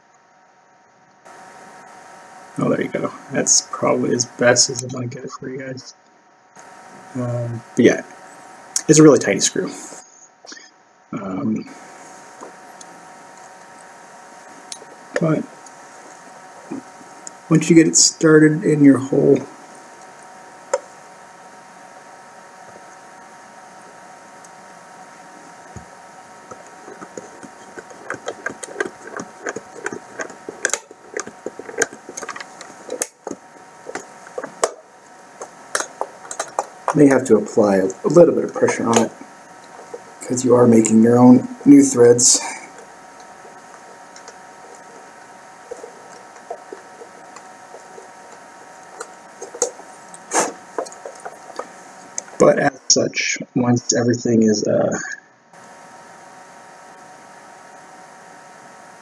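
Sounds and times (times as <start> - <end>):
handling plastic box: 26.5 - 34.8.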